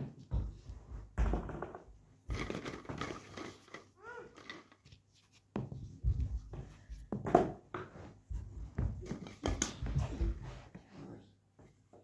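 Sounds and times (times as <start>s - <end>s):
plastic balls knocking in basin: 0.1s - 4.8s.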